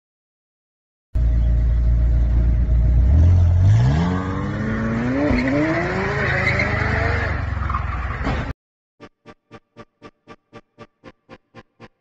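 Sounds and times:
car engine accelerating: 1.2s - 8.2s.

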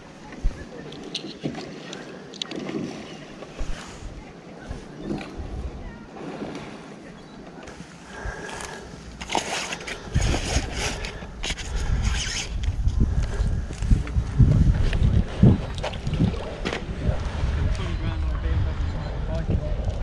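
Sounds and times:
low rumbling bumps: 12.7s - 20.0s.

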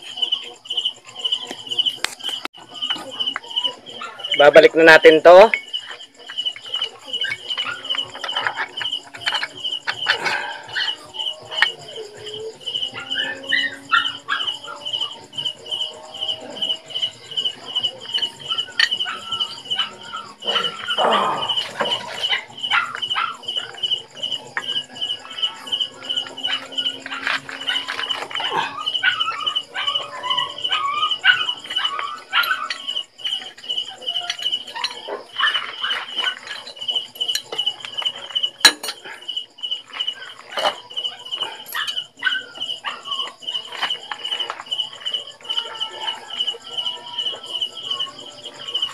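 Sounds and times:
insect chirping: 0.0s - 48.9s
dog barking: 13.0s - 14.8s, 21.8s - 23.7s, 26.4s - 32.8s, 34.8s - 36.5s, 40.2s - 43.3s.

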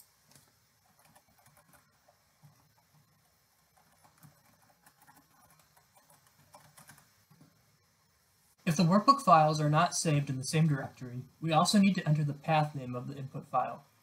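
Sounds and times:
faint keyboard typing: 0.2s - 7.6s.

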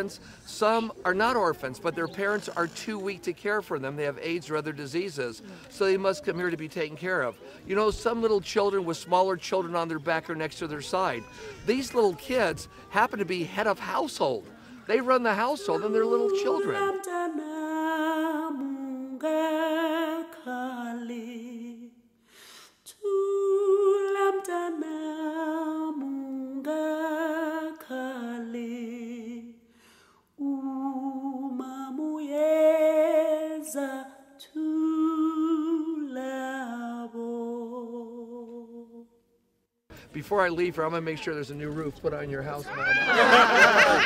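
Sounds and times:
person singing unaccompanied: 8.7s - 21.9s.

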